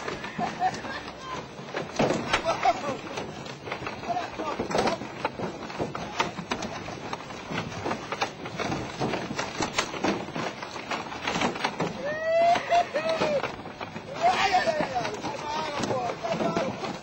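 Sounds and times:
water noise: 0.0s - 17.0s
wavering wordless cry: 12.0s - 13.5s.

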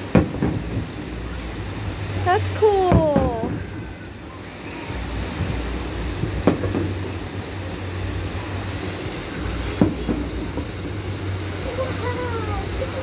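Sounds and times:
steady low rumble: 0.0s - 13.0s
firework shell bang: 0.1s - 1.2s, 6.3s - 7.2s, 9.8s - 11.0s.

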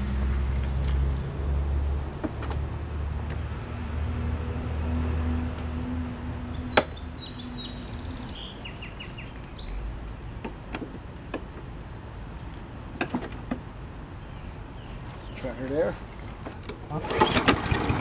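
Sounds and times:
birds chirping: 6.4s - 11.5s, 13.4s - 16.3s.

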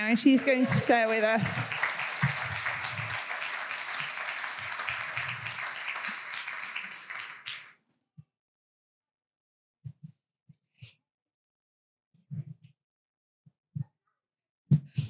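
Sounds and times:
congregation applauding: 0.0s - 7.7s.

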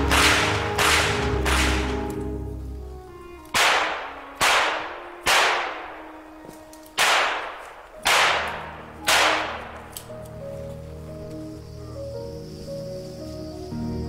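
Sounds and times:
handgun shots echoing: 0.0s - 2.3s, 3.5s - 10.3s.

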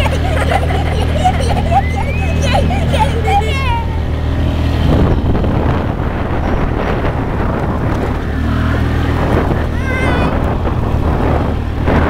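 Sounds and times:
atv engine running: 0.0s - 12.0s
wind buffeting microphone: 0.0s - 12.0s.

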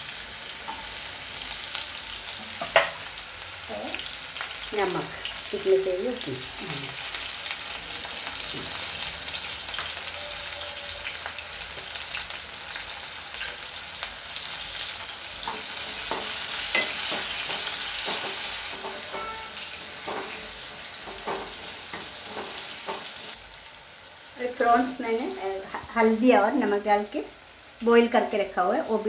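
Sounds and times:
food sizzling in hot oil: 0.0s - 29.0s
wooden spatula scraping a pan: 15.5s - 23.3s.

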